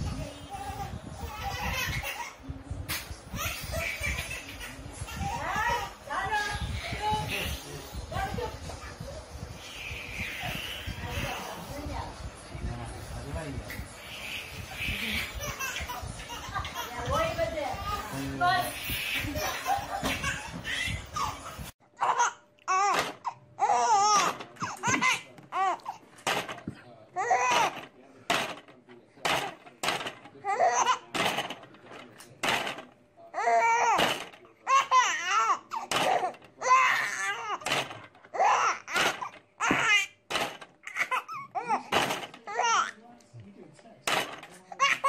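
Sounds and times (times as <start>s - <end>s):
noisy room: 0.0s - 45.0s
toddler laughing: 0.6s - 2.4s, 14.9s - 17.3s, 18.9s - 22.3s.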